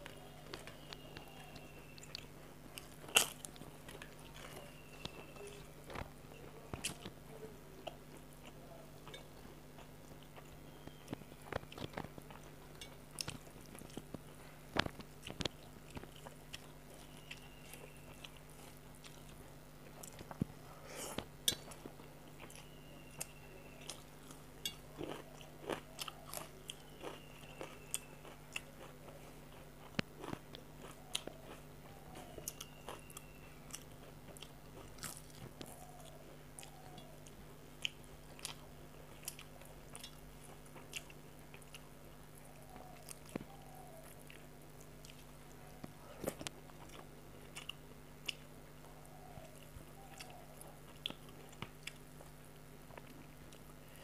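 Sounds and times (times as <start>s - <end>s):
chewing rice: 0.0s - 54.0s
crunching fried crackers: 0.0s - 54.0s
steady low hum: 0.0s - 54.0s.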